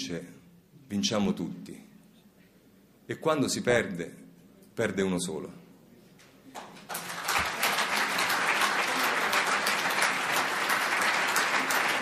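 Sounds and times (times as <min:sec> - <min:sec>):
audience applauding: 0:06.6 - 0:12.0.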